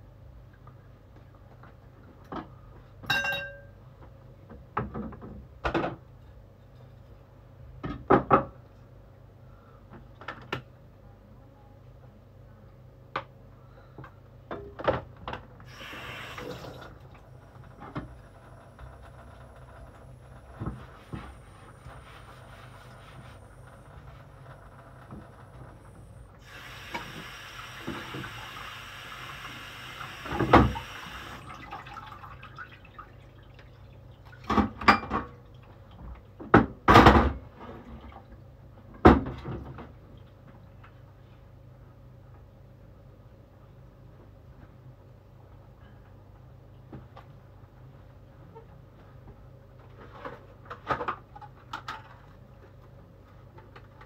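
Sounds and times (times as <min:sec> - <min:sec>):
steady low hum: 0:15.2 - 0:34.4
tap running: 0:15.7 - 0:32.0
kitchen knocks and clatters: 0:34.5 - 0:35.3.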